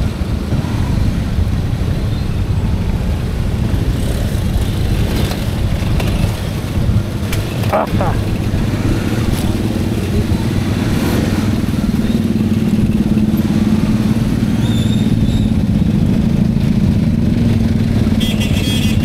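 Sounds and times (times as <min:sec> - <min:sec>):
traffic engines: 0:00.0 - 0:19.0
motorcycle engine running: 0:02.5 - 0:19.0.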